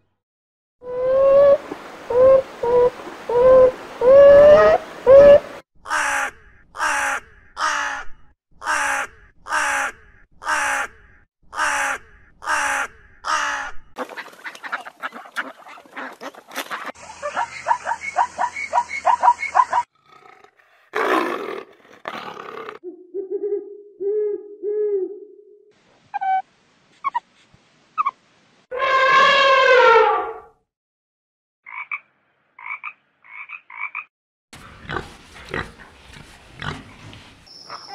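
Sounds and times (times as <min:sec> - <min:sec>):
animal calls and chattering: 0:14.4 - 0:19.9, 0:34.6 - 0:37.9.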